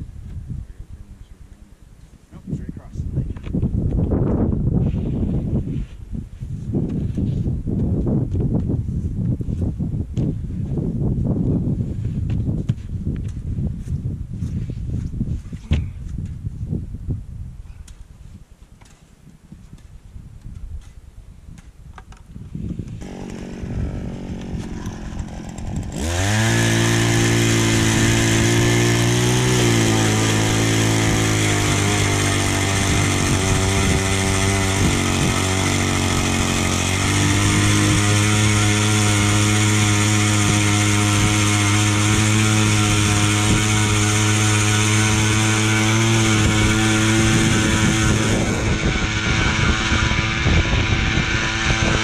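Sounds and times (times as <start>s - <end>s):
gas-powered ice auger running: 22.9s - 52.0s.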